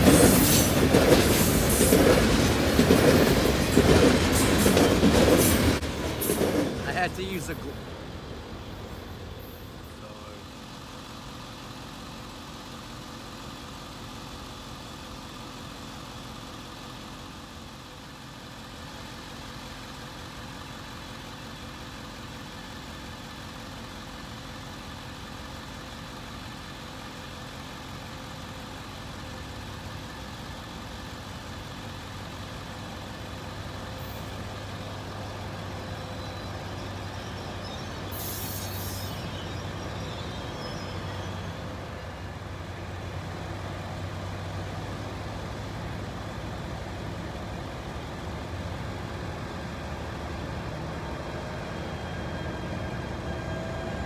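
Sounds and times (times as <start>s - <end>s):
locomotive engine hum: 0.0s - 54.0s.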